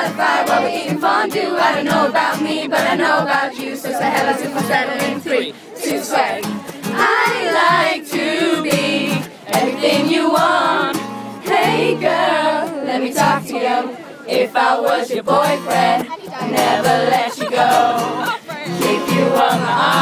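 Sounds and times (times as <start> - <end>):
crowd singing along: 0.0 - 20.0
strummed acoustic guitar: 0.0 - 20.0
man singing pop song: 3.8 - 6.7, 15.0 - 20.0.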